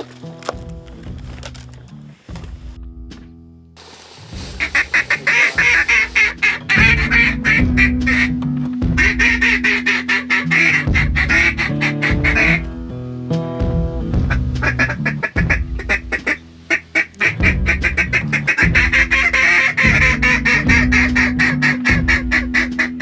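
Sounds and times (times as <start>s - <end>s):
background music: 0.0s - 23.0s
ducks quacking: 4.3s - 12.8s, 14.1s - 23.0s.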